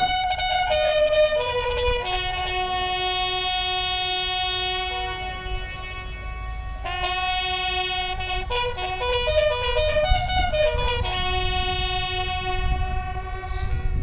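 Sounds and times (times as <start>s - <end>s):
military band playing: 6.9s - 12.7s.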